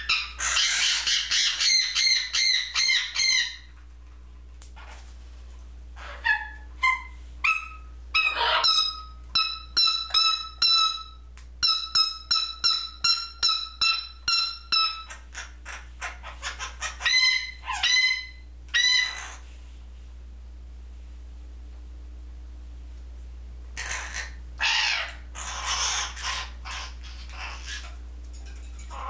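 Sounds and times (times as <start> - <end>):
parrot calls: 0.0 - 3.8, 6.0 - 19.5, 23.8 - 28.0, 28.8 - 29.0.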